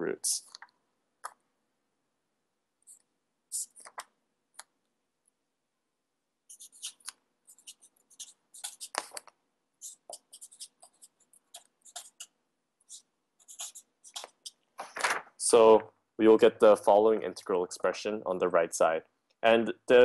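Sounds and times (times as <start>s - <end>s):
pen scratching on paper: 2.9s - 4.0s, 6.5s - 14.6s.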